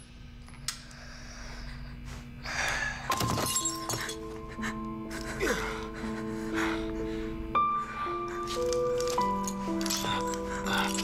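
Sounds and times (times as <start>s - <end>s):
sustained music tones: 3.1s - 11.0s.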